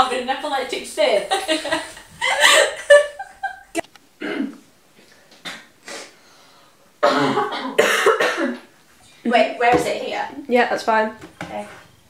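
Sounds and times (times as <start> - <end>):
person coughing: 4.2 - 4.6, 7.0 - 8.6.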